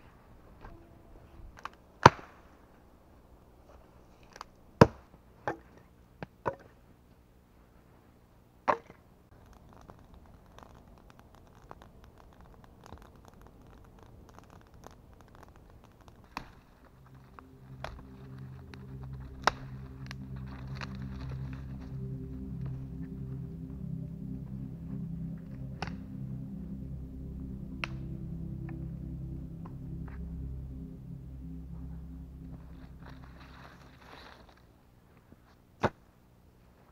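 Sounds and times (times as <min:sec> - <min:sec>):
background music: 0:16.3 - 0:34.6.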